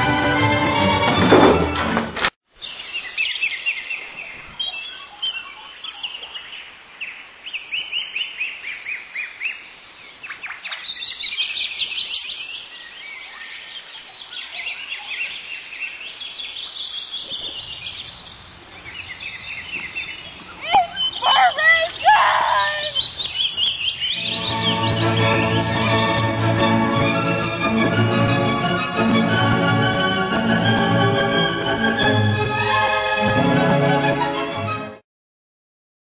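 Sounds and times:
small birds chirping: 0:02.6 - 0:25.9.

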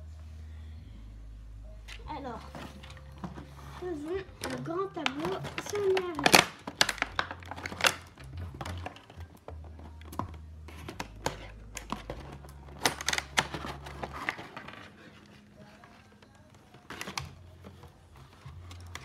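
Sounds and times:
plastic packaging crinkling: 0:01.9 - 0:19.0
plastic pieces clicking: 0:04.3 - 0:19.0.

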